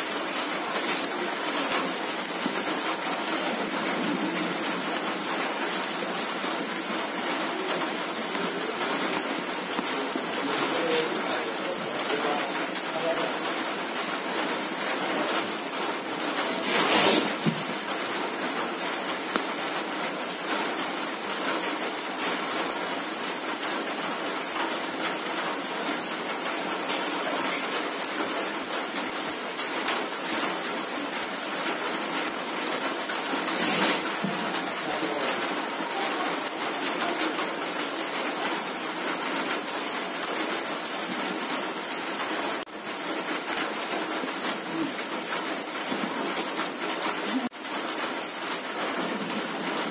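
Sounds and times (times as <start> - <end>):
wood fire crackling and hissing: 0.0 - 49.9
fish sizzling: 0.4 - 21.0, 26.7 - 38.4.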